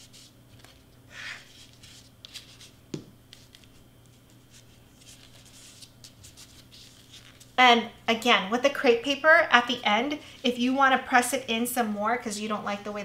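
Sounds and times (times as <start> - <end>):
paper rustling: 0.0 - 0.8, 1.5 - 7.6
low steady hum: 0.0 - 13.0
glue bottle knocking on mat: 2.9 - 3.1.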